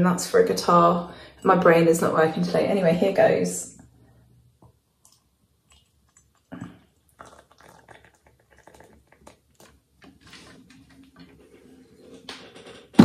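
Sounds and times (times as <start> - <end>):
water pouring into a mug: 5.7 - 10.0.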